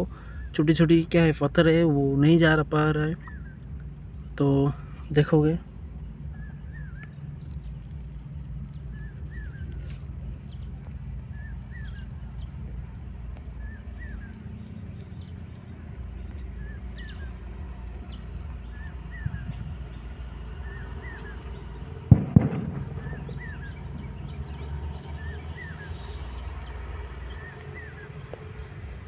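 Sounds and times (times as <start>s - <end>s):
low rumble: 3.2s - 25.4s.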